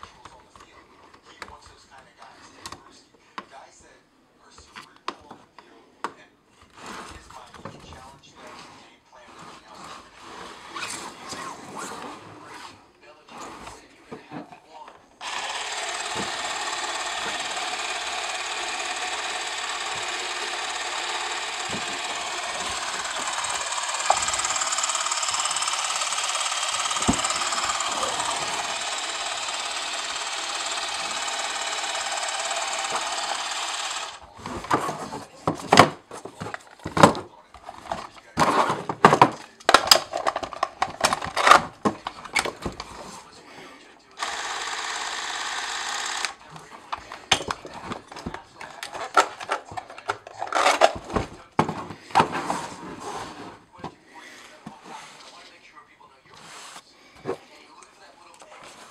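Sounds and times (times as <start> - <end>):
movie camera motor whirring: 15.2 - 34.3, 44.2 - 46.4
clicks and knocks of handling: 34.4 - 43.0.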